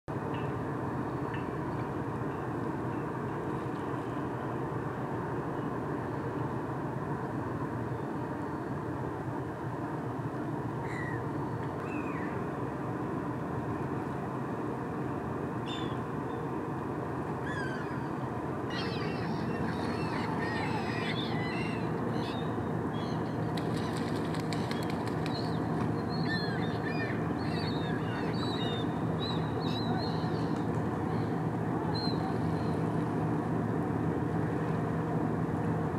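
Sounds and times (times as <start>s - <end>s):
ship engines droning: 0.1s - 35.9s
birds chirping and squawking: 18.7s - 25.5s.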